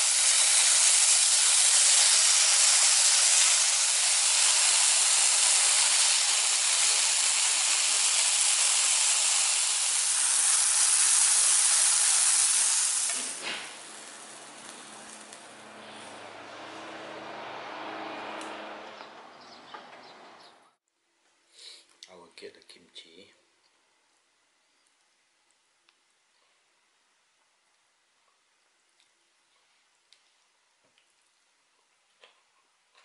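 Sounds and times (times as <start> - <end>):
meat sizzling in a pan: 0.0 - 15.4.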